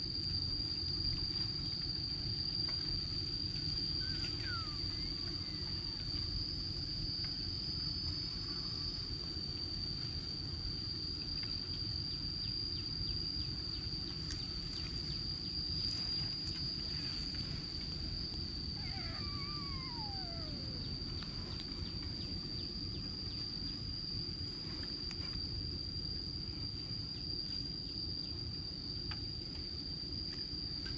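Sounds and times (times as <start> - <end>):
high insect drone: 0.0 - 30.9
falling call: 18.8 - 21.6.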